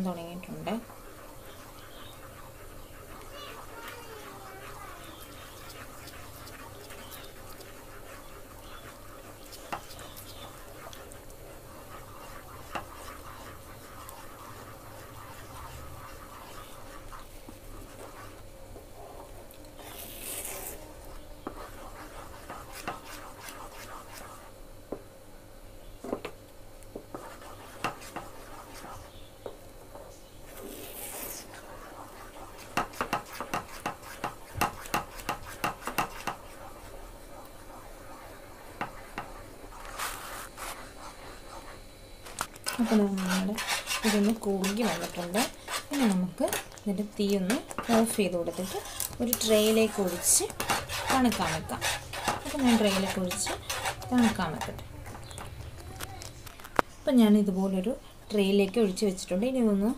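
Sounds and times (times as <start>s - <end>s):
spatula scraping metal pan: 11.8s - 17.2s, 42.7s - 46.8s, 47.4s - 55.4s
spatula tapping pan: 12.6s - 13.2s, 32.6s - 36.5s.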